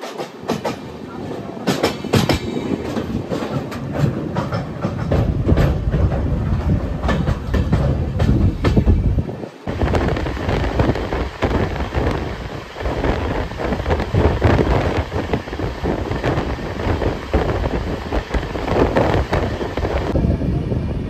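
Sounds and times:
train rumbling on track: 0.0s - 21.0s
wind buffeting microphone: 0.5s - 21.0s.

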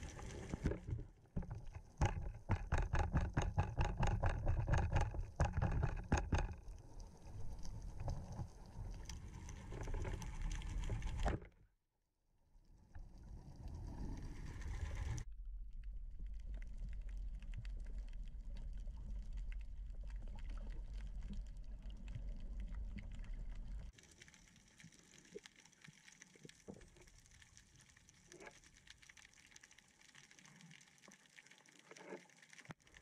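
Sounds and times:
faint crackling clicks: 0.0s - 11.5s
underwater low rumble: 0.0s - 11.5s, 12.5s - 24.0s.

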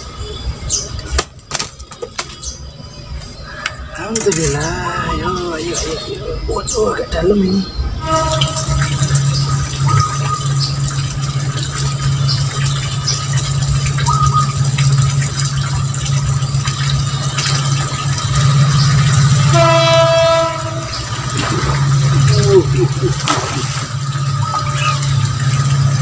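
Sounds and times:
steady low hum: 0.0s - 26.0s
horn-like tone: 7.9s - 10.8s, 19.3s - 22.1s.

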